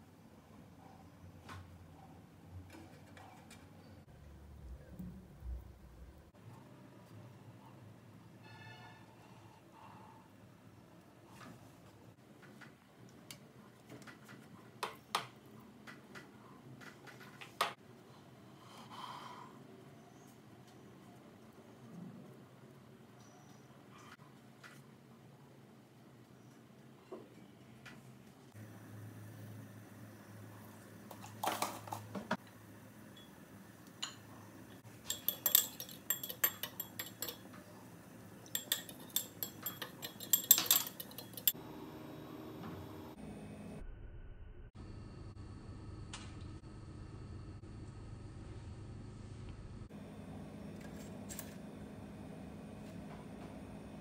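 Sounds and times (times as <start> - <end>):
cutlery clinking on ceramic bowl: 35.0 - 37.6, 38.4 - 41.6.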